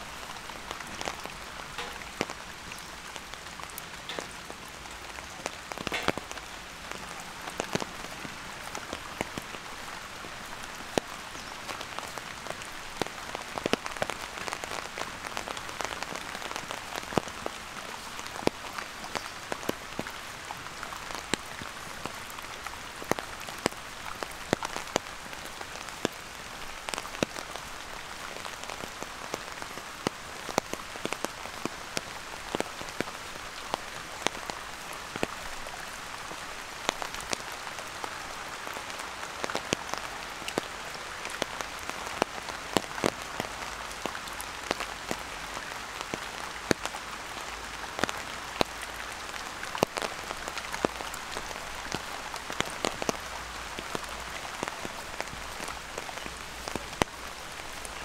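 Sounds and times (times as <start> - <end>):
steady rain falling: 0.0 - 58.0
drops ticking close by: 1.8 - 2.3.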